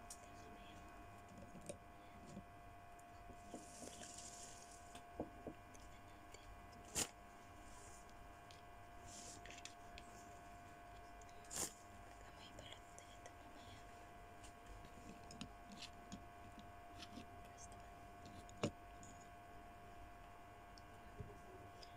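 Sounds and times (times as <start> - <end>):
faint hum: 0.0 - 21.9
hands rustling tissue: 3.5 - 4.9.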